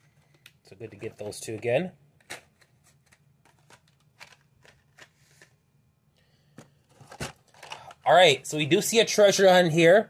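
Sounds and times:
plastic packaging clicks and rustles: 0:00.1 - 0:05.6.

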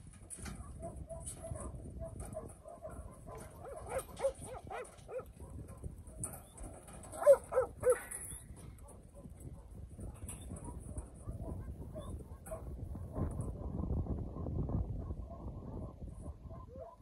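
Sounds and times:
dog barking: 0:00.6 - 0:06.4, 0:07.1 - 0:08.1, 0:10.6 - 0:12.7, 0:15.3 - 0:17.0.

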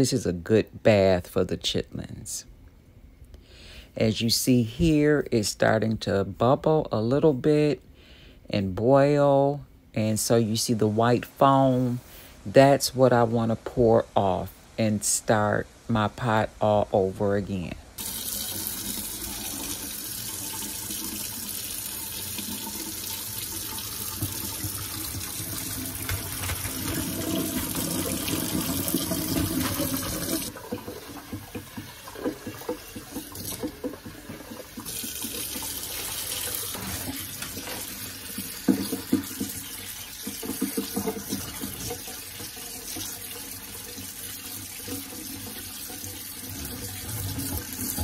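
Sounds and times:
faucet running into steel sink: 0:18.0 - 0:48.0
water poured through colander: 0:18.0 - 0:48.0.

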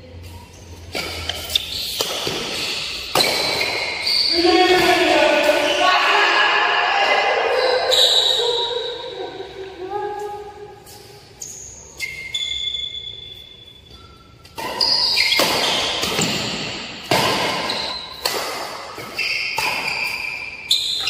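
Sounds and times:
shoe squeaks: 0:00.1 - 0:05.8, 0:07.4 - 0:09.5, 0:10.2 - 0:18.3, 0:19.0 - 0:21.0
racket hitting shuttlecock: 0:00.9 - 0:05.8, 0:14.4 - 0:21.0.

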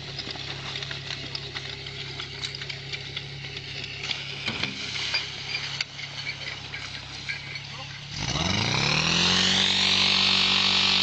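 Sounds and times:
hose couplings clattering: 0:00.0 - 0:08.1
fire pump engine running: 0:00.0 - 0:11.0
hiss of spraying water: 0:04.1 - 0:07.3.

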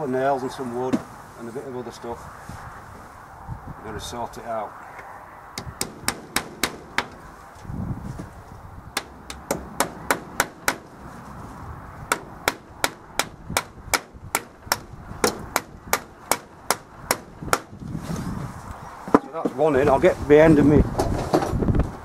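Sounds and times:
hammer striking nail into wood: 0:05.6 - 0:07.2, 0:09.0 - 0:10.9, 0:12.1 - 0:17.8.

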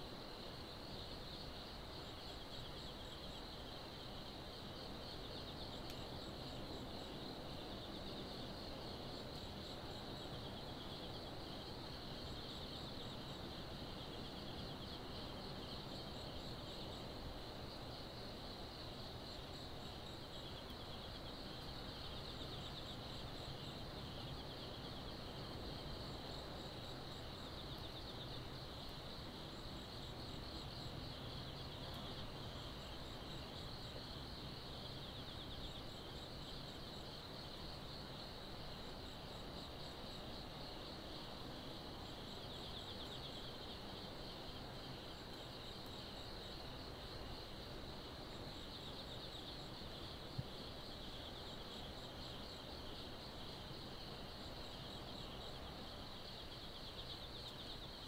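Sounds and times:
crickets trilling: 0:00.0 - 0:58.0
insect chirping: 0:00.0 - 0:58.0
faint click: 0:05.8 - 0:06.0.

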